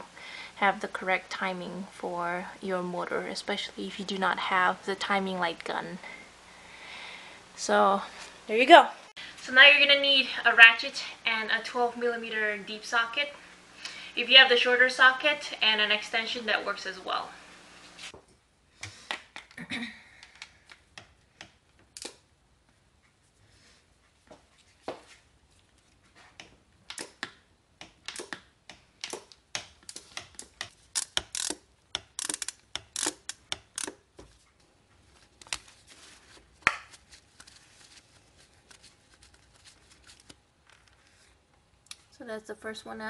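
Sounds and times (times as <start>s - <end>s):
ratchet clicking: 29.9s - 34.0s.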